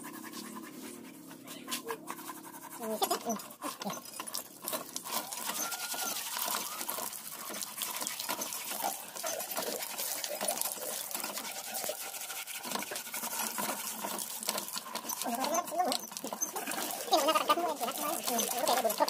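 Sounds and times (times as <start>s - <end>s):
hands scrubbing wet hide: 0.0s - 19.0s
water splashing onto hide: 4.2s - 19.0s.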